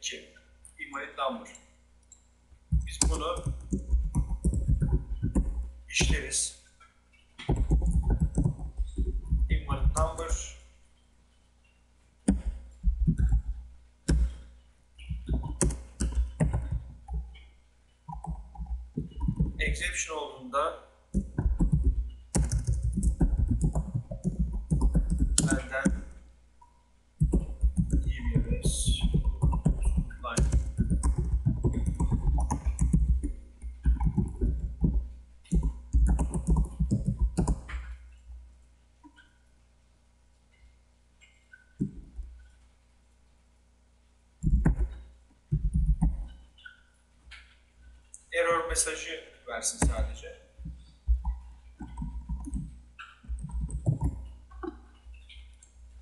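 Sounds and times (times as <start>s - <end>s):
computer keyboard typing: 2.7s - 6.3s, 7.4s - 10.5s, 12.3s - 14.4s, 15.0s - 17.5s, 18.1s - 19.9s, 21.2s - 26.2s, 27.2s - 38.0s, 44.4s - 46.8s, 49.8s - 55.5s
computer keyboard key clicks: 21.2s - 26.0s.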